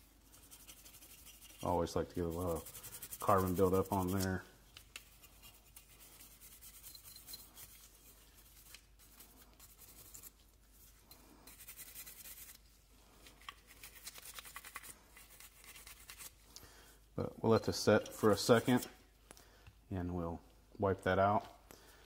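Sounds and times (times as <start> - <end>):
brush scrubbing metal: 0.0 - 12.7, 13.3 - 16.4.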